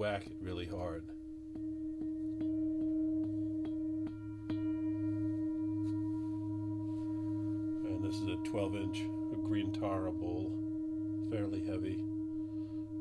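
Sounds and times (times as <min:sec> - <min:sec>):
mallet rubbing singing bowl: 0:00.0 - 0:13.0
singing bowl ringing: 0:00.0 - 0:13.0.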